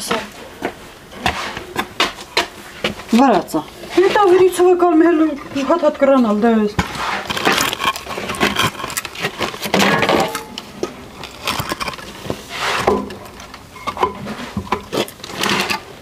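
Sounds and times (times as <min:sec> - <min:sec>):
hard objects knocking and clinking: 0:05.4 - 0:15.8.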